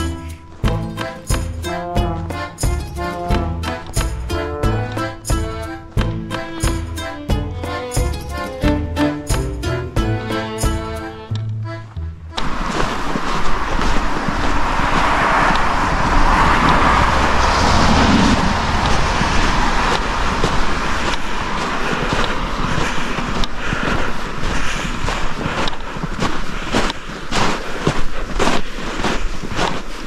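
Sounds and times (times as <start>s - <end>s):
vehicle passing by: 11.8s - 23.1s.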